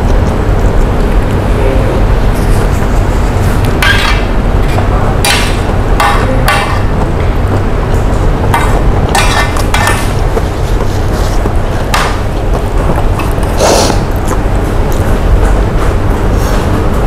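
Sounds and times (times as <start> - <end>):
steady low rumble: 0.0 - 17.0
metal spoon scraping a plate: 9.1 - 10.1.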